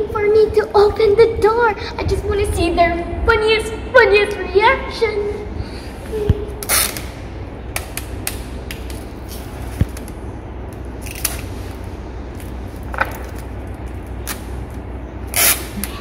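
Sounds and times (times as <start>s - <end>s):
low hum: 0.0s - 16.0s
sticky tape ripping: 6.6s - 7.2s, 7.8s - 11.8s, 12.4s - 16.0s.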